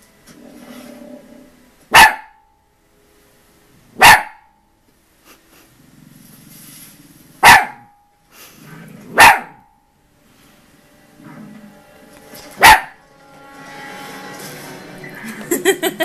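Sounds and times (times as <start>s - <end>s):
documentary soundtrack from tv: 0.0s - 4.5s, 5.8s - 16.0s
puppy barking: 1.9s - 2.5s, 4.0s - 4.6s, 7.4s - 8.0s, 9.2s - 9.7s, 12.6s - 13.0s.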